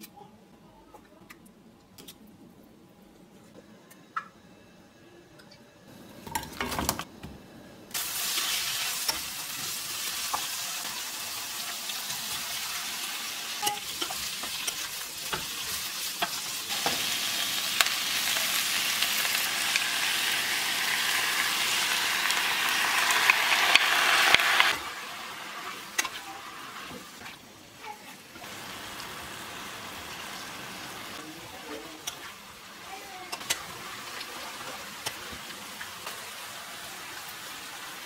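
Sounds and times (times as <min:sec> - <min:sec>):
vegetables sizzling in hot oil: 0:07.9 - 0:38.0.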